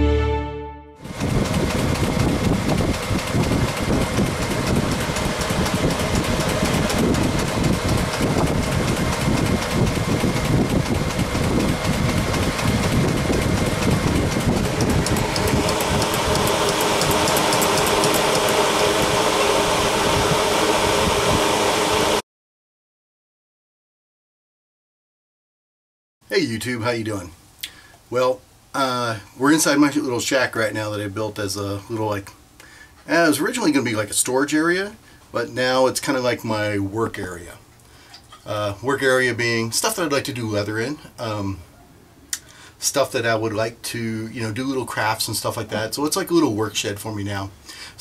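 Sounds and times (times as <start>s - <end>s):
sewing machine clattering: 1.1s - 18.6s.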